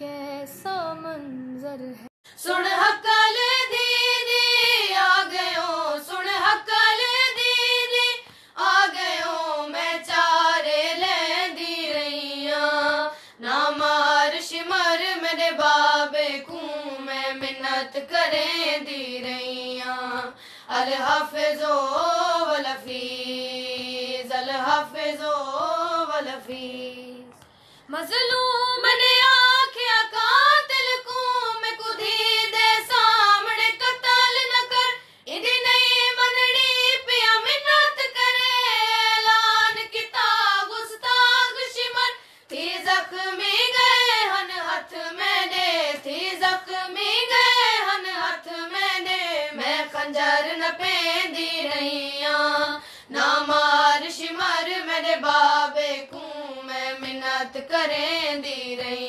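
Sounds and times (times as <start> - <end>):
women singing lament unaccompanied: 0.0 - 59.0.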